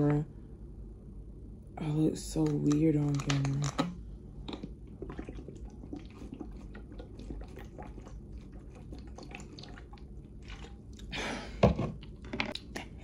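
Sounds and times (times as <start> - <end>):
person swallowing water: 4.4 - 13.0.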